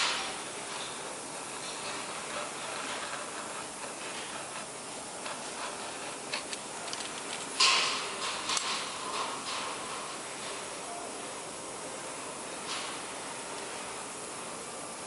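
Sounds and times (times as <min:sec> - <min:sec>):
hands rubbing paper: 0:01.9 - 0:07.5.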